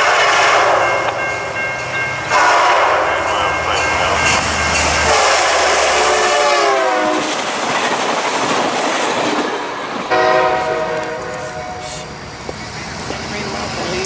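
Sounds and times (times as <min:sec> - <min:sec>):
train air horn: 0:00.0 - 0:01.2, 0:02.3 - 0:03.1, 0:05.0 - 0:07.3, 0:10.1 - 0:12.1
train rumbling on rails: 0:00.0 - 0:14.0.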